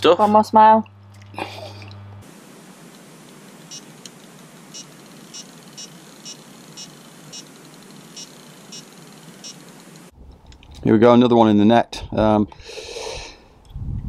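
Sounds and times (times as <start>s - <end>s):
steady low hiss: 2.2s - 11.2s
bite alarm beeps: 4.8s - 7.5s.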